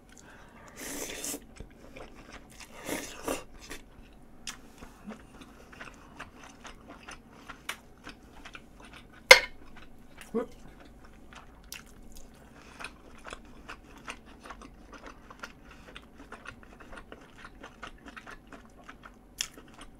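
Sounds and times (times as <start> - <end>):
person chewing: 0.0 - 19.9
slurping noodles: 0.7 - 3.8.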